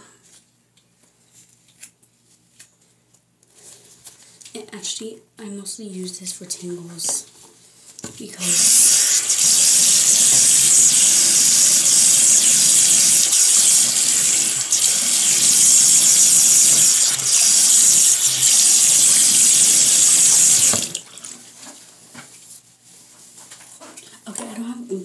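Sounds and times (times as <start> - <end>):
water running from a tap: 8.4 - 21.4.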